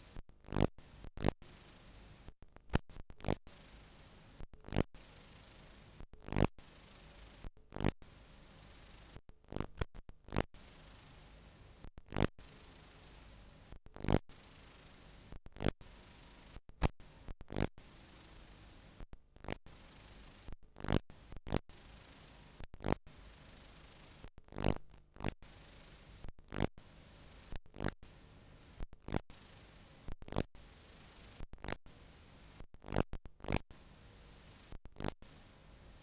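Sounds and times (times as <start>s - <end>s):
videotape hiss: 0.8s - 4.4s, 5.0s - 6.0s, 10.6s - 11.8s, 12.4s - 13.7s, 14.3s - 19.0s, 19.7s - 20.5s, 21.7s - 24.3s, 25.5s - 32.6s, 33.8s - 36.0s
pops and crackles: 9.5s - 10.5s, 32.8s - 33.6s, 35.0s - 35.2s.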